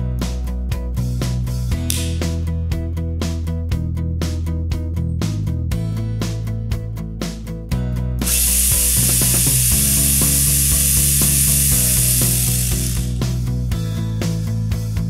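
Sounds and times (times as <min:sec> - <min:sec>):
background music with steady beat: 0:00.0 - 0:15.0
electric pruning saw whirring: 0:08.2 - 0:13.4.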